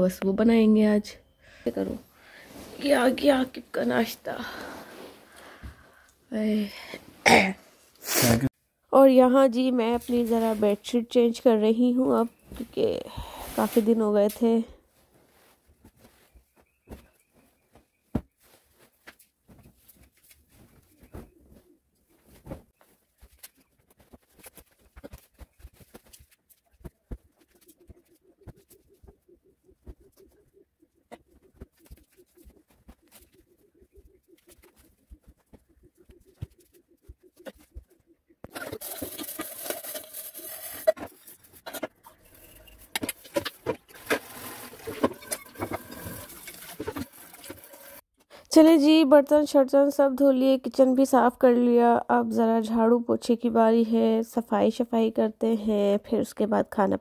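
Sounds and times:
cloth rustling: 0:01.8 - 0:05.6, 0:09.5 - 0:38.0
tap water running into sink: 0:44.7 - 0:48.0.

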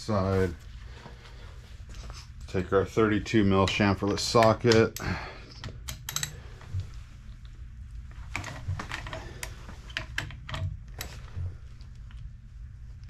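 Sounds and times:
low steady hum: 0:00.0 - 0:13.0
hand tools clicking and tapping: 0:03.6 - 0:06.4.

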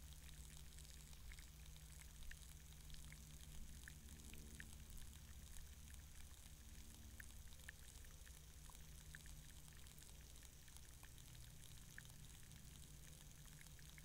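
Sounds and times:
faint hiss: 0:00.0 - 0:14.0
low steady hum: 0:00.0 - 0:14.0
sharp underwater ticks and clicks: 0:00.0 - 0:14.0.

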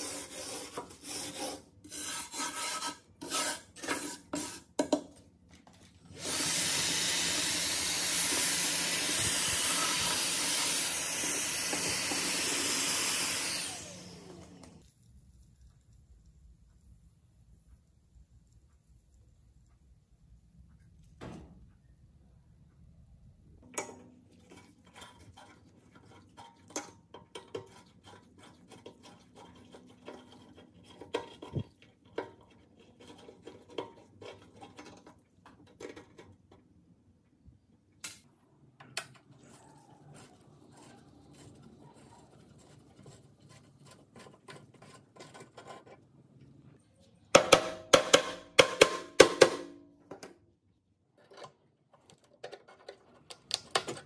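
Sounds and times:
small metallic clicks and scrapes: 0:51.1 - 0:54.0.

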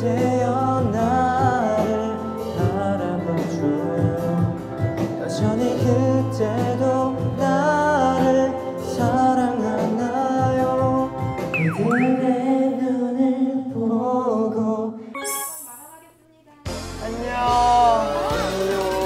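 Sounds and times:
man singing into microphone: 0:00.0 - 0:15.1
karaoke backing track: 0:00.0 - 0:19.0.

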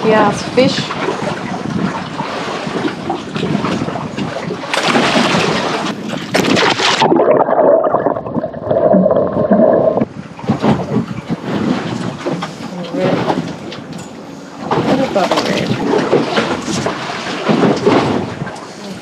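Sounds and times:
wind noise on microphone: 0:00.0 - 0:13.9, 0:14.6 - 0:19.0
water sloshing around boat: 0:00.0 - 0:19.0.

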